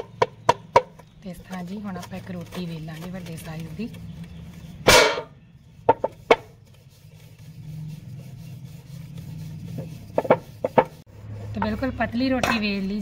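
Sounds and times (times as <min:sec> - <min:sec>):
wood knocking against steel: 0:05.9 - 0:06.5.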